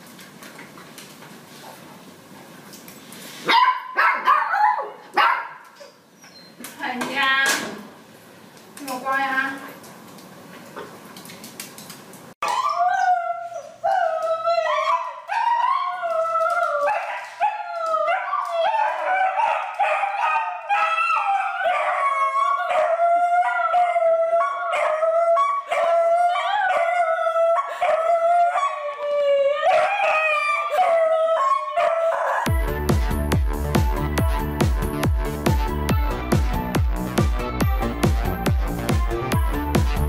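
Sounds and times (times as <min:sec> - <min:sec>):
dog whining and howling: 0:12.4 - 0:32.7.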